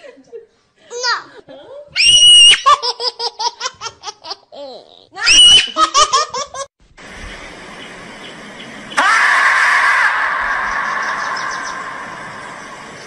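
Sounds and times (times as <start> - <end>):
faint steady hiss: 6.8 - 9.0.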